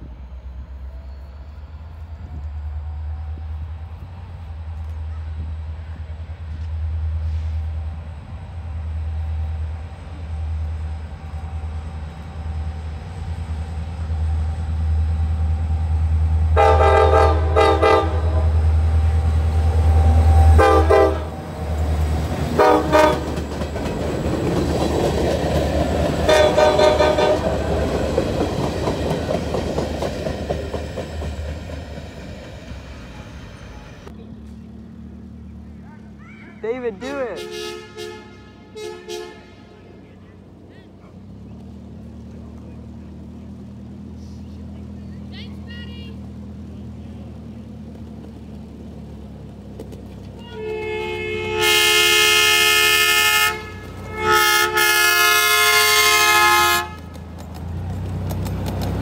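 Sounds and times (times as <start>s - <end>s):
diesel locomotive engine rumbling: 0.0s - 59.0s
train horn blasts: 16.6s - 18.8s, 20.0s - 21.5s, 22.5s - 23.4s, 26.2s - 27.6s, 37.3s - 40.0s, 50.4s - 57.2s
freight car wheel noise: 40.0s - 51.9s.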